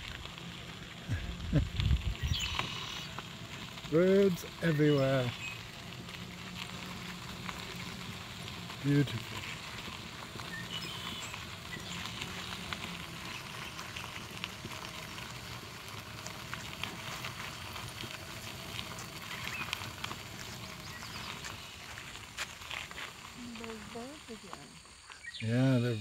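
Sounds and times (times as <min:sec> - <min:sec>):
footsteps on gravel: 0:00.0 - 0:26.0
faint bird chirps: 0:02.2 - 0:03.1, 0:10.4 - 0:12.2, 0:25.0 - 0:26.0.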